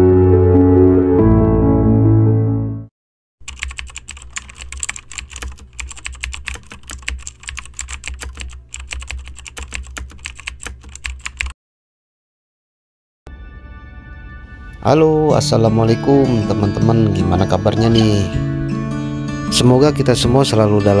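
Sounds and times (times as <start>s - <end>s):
fast keyboard typing: 3.4s - 11.6s.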